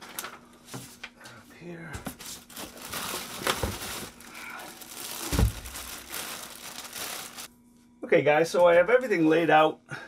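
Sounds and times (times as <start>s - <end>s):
plastic wrapping crinkling: 2.2s - 7.5s.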